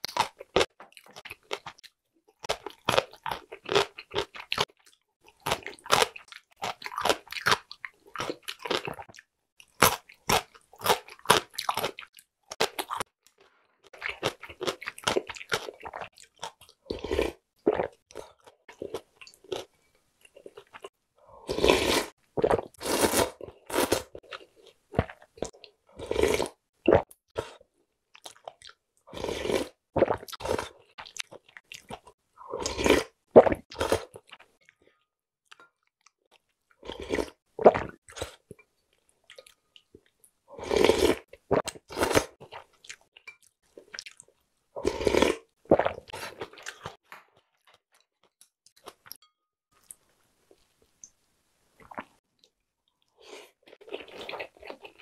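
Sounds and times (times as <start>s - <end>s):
slurping noodles: 21.4s - 24.2s, 26.0s - 27.6s, 32.4s - 34.3s, 40.5s - 42.4s, 44.8s - 46.6s.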